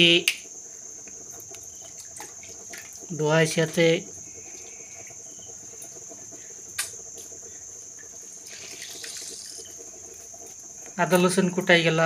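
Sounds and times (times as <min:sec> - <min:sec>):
crickets chirring: 0:00.0 - 0:12.0
hands washing mushrooms in water: 0:01.4 - 0:05.1, 0:08.0 - 0:11.8.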